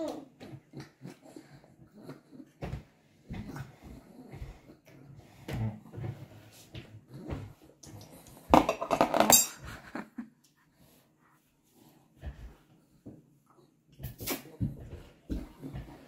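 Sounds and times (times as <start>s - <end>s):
cutlery clattering: 8.6s - 9.6s.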